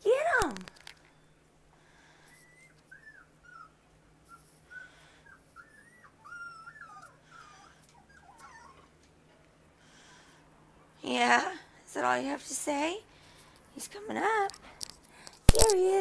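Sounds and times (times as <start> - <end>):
puppy whimpering: 2.2 - 9.1.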